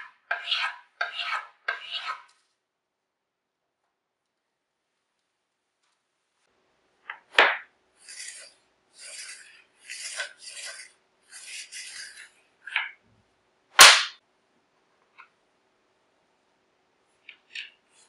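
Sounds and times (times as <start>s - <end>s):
metal bar scraping: 0.0s - 2.4s, 8.0s - 12.9s.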